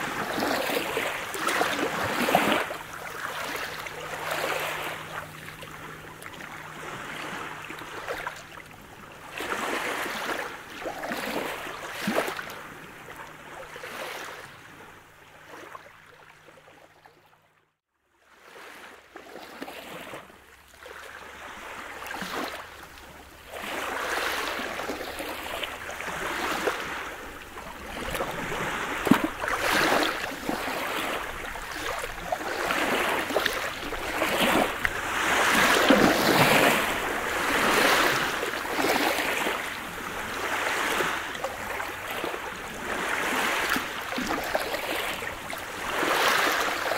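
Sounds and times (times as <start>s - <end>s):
waves washing onto pebble beach: 23.6s - 46.9s.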